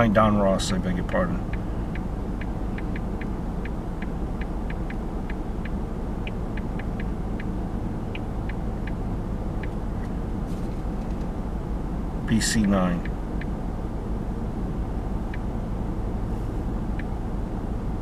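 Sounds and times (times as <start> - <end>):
car engine idling: 0.0 - 18.0
light irregular clicks: 1.4 - 7.5, 9.6 - 10.2.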